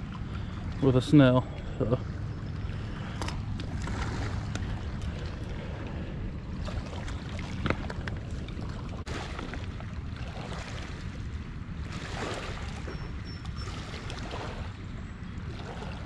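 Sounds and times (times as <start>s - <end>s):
river water: 0.0s - 16.0s
wind: 0.0s - 16.0s
wind rumble on microphone: 0.0s - 16.0s.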